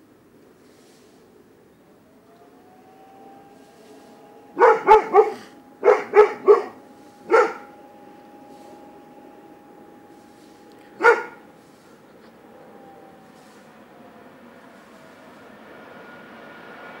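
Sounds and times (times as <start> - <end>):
dog barking: 4.6 - 7.7, 11.0 - 11.4.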